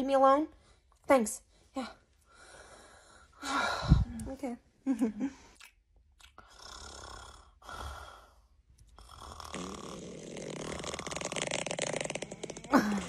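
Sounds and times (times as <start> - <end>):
person snoring: 6.5 - 13.0.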